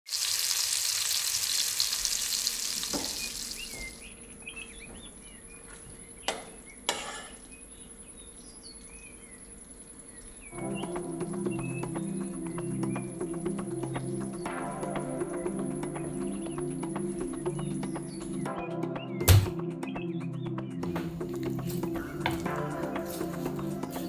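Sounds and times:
meat sizzling in a frying pan: 0:00.1 - 0:04.0
birds chirping: 0:02.0 - 0:24.0.

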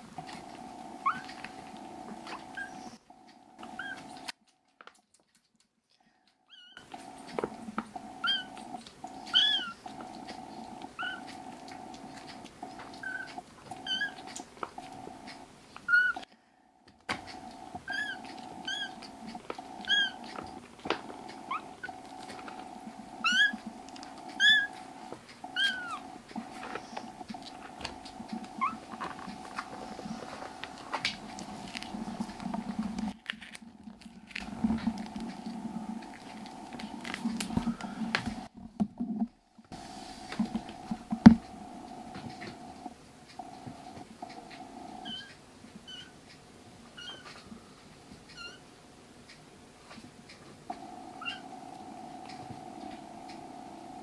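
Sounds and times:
steady low hum: 0:00.0 - 0:04.3, 0:06.8 - 0:45.6, 0:50.6 - 0:54.0
kitten mewing: 0:08.2 - 0:10.0, 0:10.9 - 0:11.3, 0:17.7 - 0:22.5, 0:23.2 - 0:23.7, 0:24.3 - 0:24.8.

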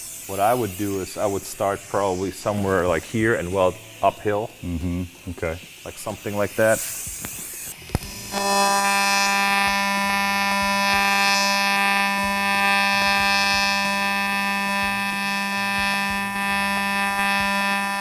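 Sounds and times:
welding arc buzzing: 0:00.0 - 0:18.0.

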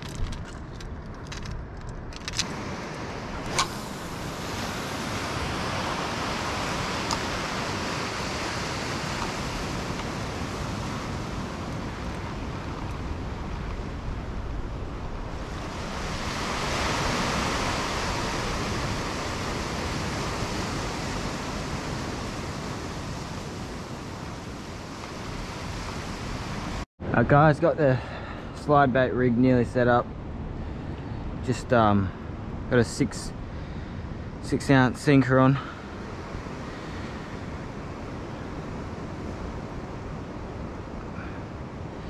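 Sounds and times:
wind on microphone: 0:00.0 - 0:26.8
ocean surf washing against rocks: 0:02.3 - 0:26.8.

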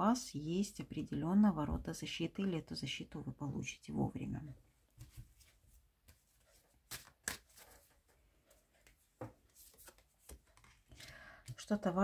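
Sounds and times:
cards tapping and rustling: 0:06.1 - 0:08.2, 0:08.8 - 0:11.6.

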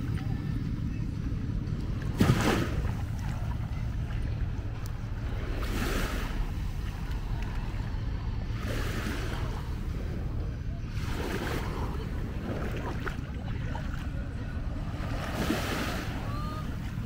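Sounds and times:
wind rumble on microphone: 0:00.0 - 0:17.0
small waves washing on sand: 0:02.1 - 0:03.4, 0:05.3 - 0:10.2, 0:10.9 - 0:17.0.

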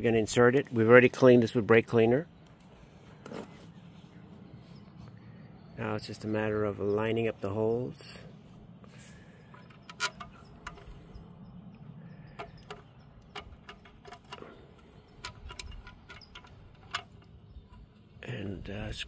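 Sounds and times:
light metallic clicks and clinks: 0:09.4 - 0:18.1.

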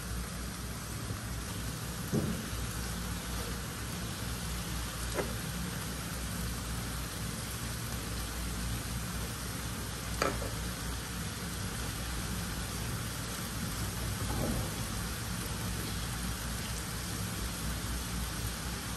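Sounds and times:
food sizzling in a frying pan: 0:00.0 - 0:18.9
sharp knocks: 0:02.1 - 0:02.5.

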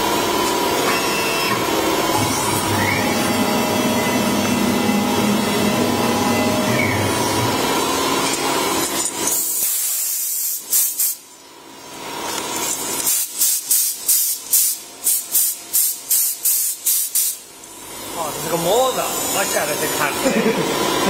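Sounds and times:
steady machine noise: 0:00.0 - 0:09.6, 0:17.4 - 0:21.0
short sharp hisses: 0:09.6 - 0:11.2.

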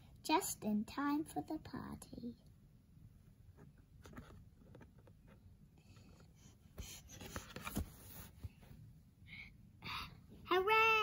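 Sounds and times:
soft knocks of book handling: 0:03.5 - 0:08.8
book page turning: 0:07.0 - 0:08.6.

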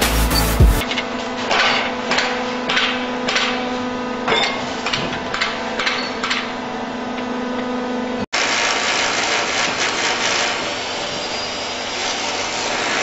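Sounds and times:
concrete pump humming: 0:08.4 - 0:13.0.

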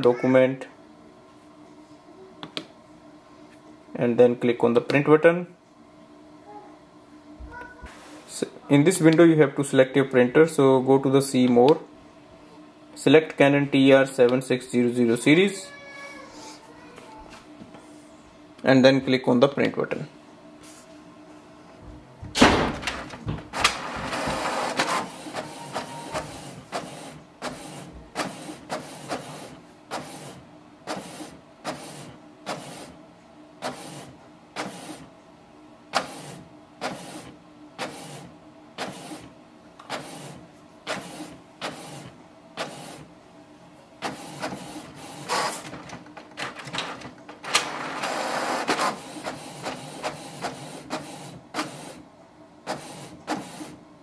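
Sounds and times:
inkjet printer printing: 0:22.8 - 0:33.0, 0:33.6 - 0:35.1, 0:35.9 - 0:43.2, 0:44.0 - 0:53.8.

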